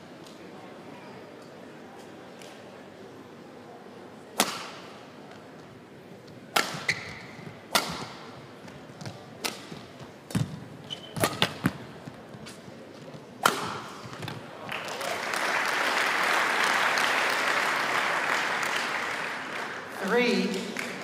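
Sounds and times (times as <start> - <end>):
racket hitting shuttlecock: 4.4 - 5.0, 6.5 - 12.6, 13.4 - 14.4
court shoes squeaking: 5.3 - 14.6.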